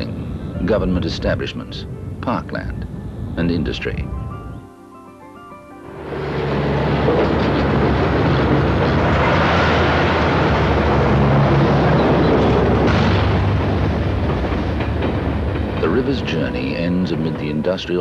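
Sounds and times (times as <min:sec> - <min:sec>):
vehicle noise with low hum: 0:06.0 - 0:17.5.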